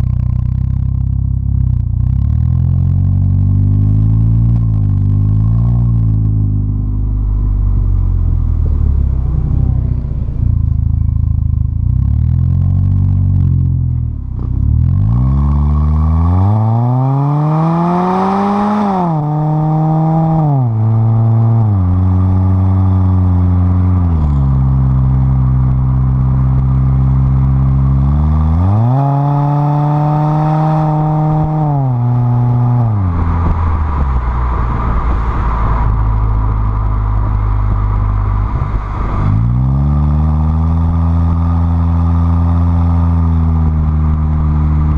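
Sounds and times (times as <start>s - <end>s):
car exhaust note accelerating: 0.0s - 44.9s.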